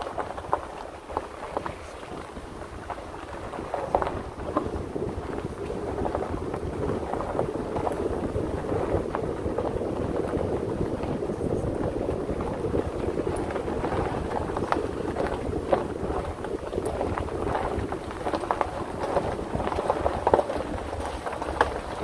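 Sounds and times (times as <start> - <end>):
stones ticking and knocking: 0.0 - 22.0
truck engine and tyres on dirt: 0.0 - 22.0
wind on microphone: 0.0 - 22.0.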